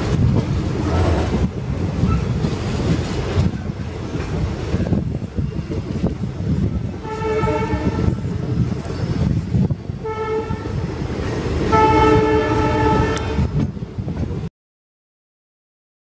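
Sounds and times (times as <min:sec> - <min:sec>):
rumble of moving train coach: 0:00.0 - 0:14.5
train horn blasts: 0:07.0 - 0:08.3, 0:10.0 - 0:10.9, 0:11.7 - 0:13.6.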